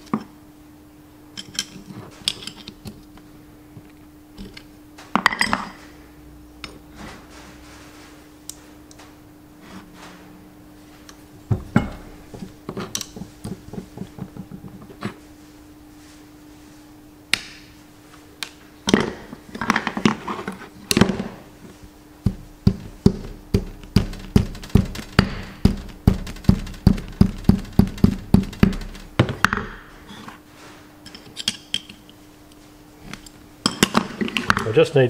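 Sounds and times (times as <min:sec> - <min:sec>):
hammer tapping metal: 0:22.2 - 0:29.9.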